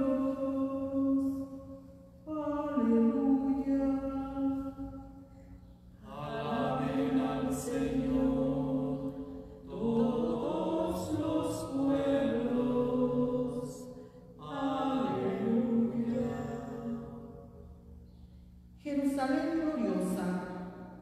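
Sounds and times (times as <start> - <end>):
person singing psalm: 6.0 - 17.3.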